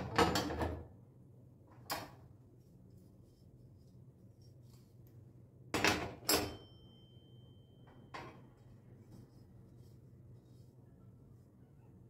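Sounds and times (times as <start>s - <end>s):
short metallic ring: 6.3s - 8.4s.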